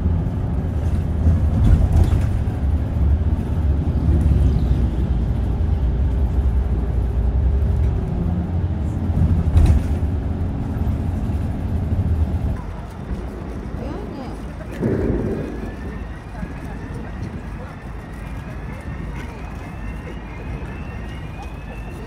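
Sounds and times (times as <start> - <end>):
road and engine rumble: 0.0 - 22.0
vehicle bump: 0.8 - 3.0, 9.0 - 12.6.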